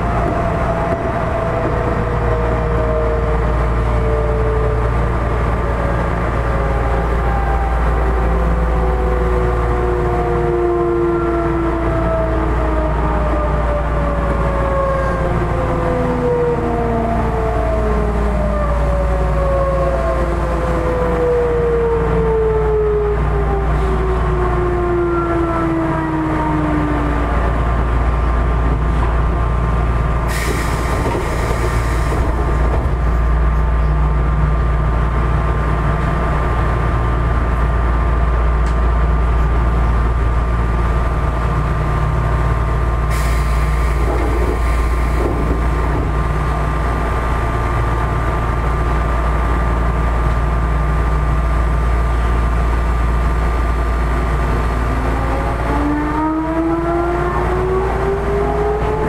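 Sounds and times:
compressed air hiss of doors: 30.3 - 32.4, 43.1 - 45.2.

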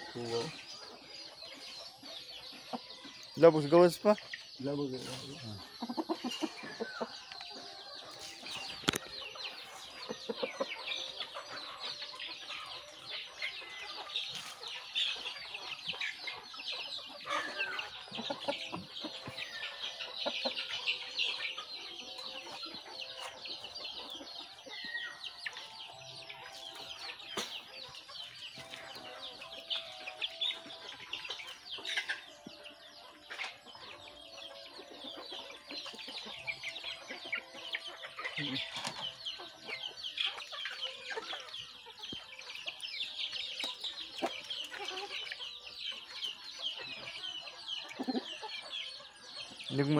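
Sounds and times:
chickens clucking: 0.0 - 49.9
chicks peeping: 0.0 - 49.9.

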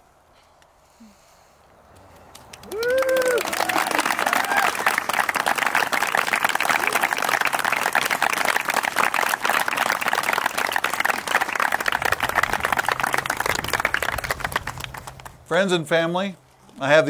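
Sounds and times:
crowd applauding: 2.2 - 15.7.

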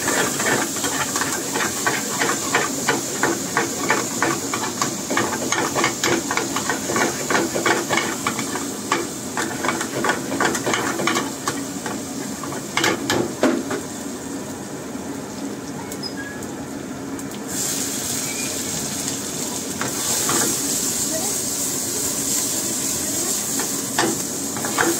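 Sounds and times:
gas burner hissing: 0.0 - 14.5, 17.4 - 24.9
food frying sizzle: 0.0 - 24.9.

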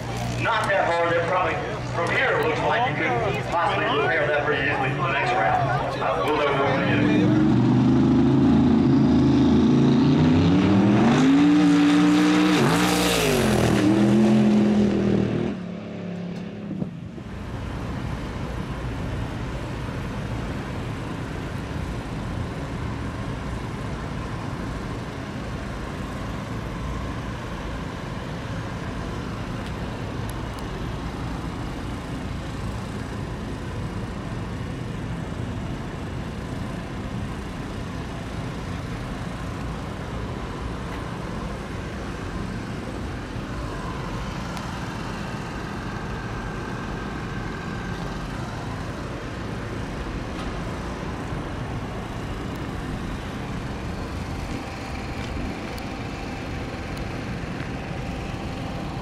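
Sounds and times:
truck engine revving hard: 0.0 - 16.1
steady background noise: 0.0 - 59.0.

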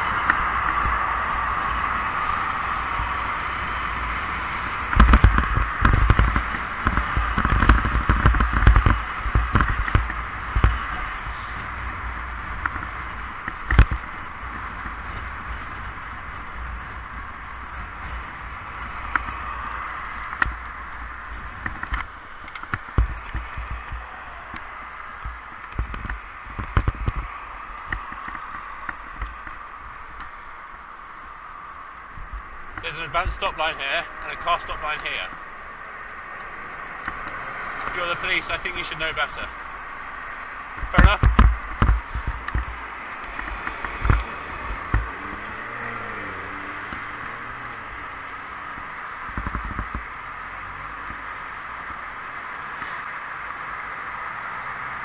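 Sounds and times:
wind and road hiss: 0.0 - 55.0
irregular knocks and crackles: 4.9 - 10.8, 12.5 - 15.8, 20.3 - 30.9, 40.7 - 45.5, 48.7 - 50.2.

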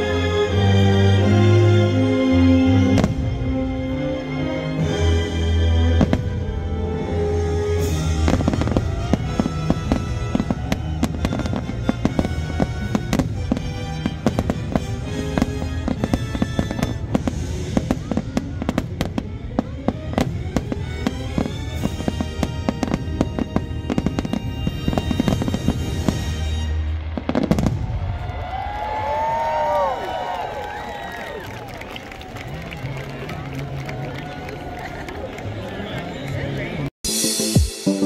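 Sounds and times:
music playing: 0.0 - 27.5, 35.3 - 38.0
fireworks bangs and crackles: 2.9 - 3.7, 4.8 - 30.4.

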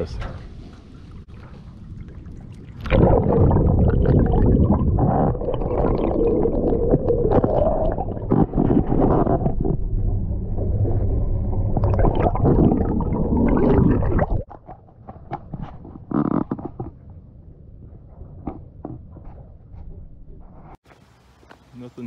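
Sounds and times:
muffled underwater rushing and gurgling: 0.6 - 14.5.

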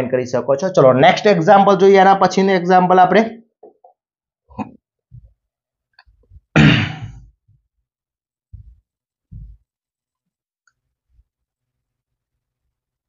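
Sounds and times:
soft low thumps: 8.5 - 9.6.

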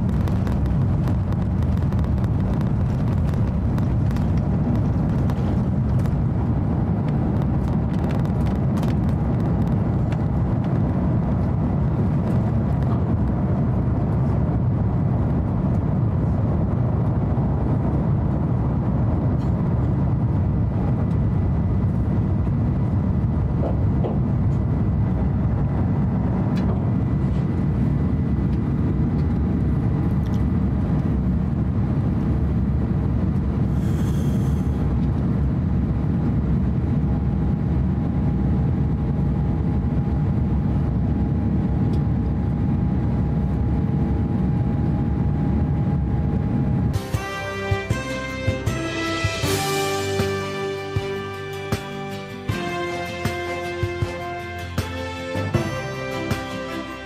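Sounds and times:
rush of air: 0.0 - 37.9
jet engines roaring: 0.0 - 57.0.

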